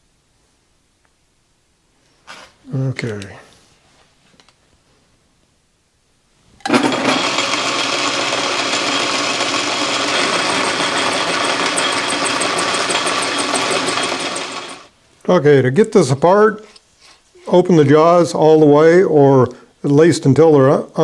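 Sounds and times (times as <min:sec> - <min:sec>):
boring bar cutting steel pipe: 0:06.7 - 0:14.9
metal lathe running: 0:06.7 - 0:14.9.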